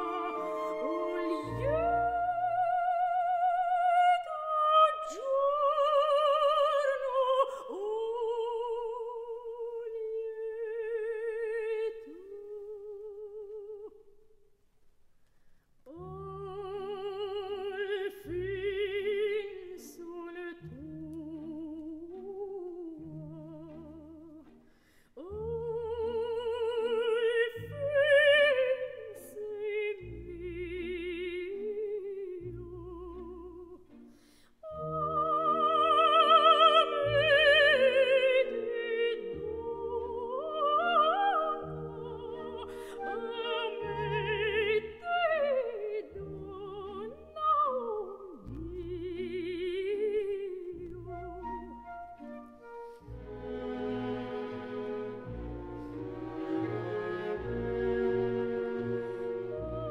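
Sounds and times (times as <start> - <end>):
soft orchestral chords: 0.0 - 4.0, 48.5 - 59.9
operatic soprano singing: 0.0 - 14.0, 15.9 - 24.5, 25.2 - 33.9, 34.6 - 51.9, 53.9 - 59.9.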